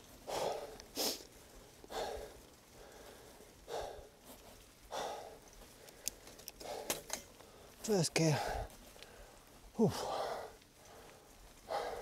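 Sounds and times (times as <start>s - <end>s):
cyclist breathing hard: 0.0s - 12.0s
sharp clicks: 5.8s - 7.3s.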